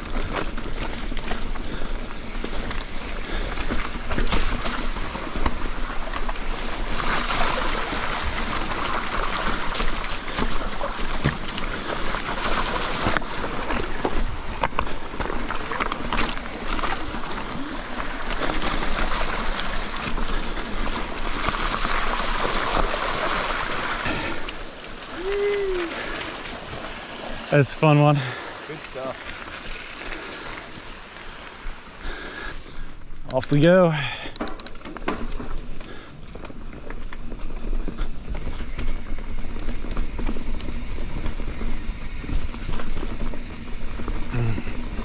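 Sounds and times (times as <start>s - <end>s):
bike clicks and knocks: 0.0s - 7.2s, 8.8s - 22.1s, 33.1s - 45.0s
bike tyres rushing on dirt: 0.0s - 45.0s.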